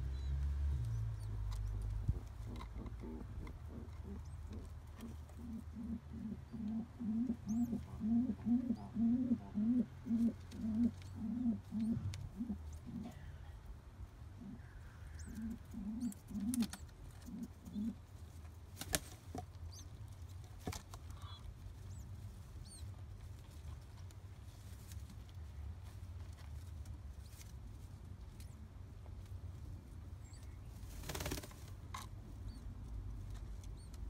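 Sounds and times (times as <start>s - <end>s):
pigeons cooing grunts: 1.6s - 13.3s, 14.4s - 18.0s.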